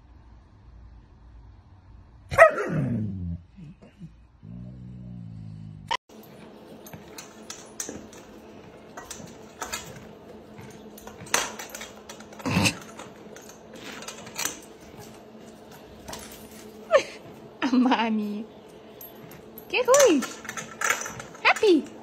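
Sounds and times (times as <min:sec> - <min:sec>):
metal feed bowl clinking: 0:06.1 - 0:16.9, 0:18.1 - 0:22.0.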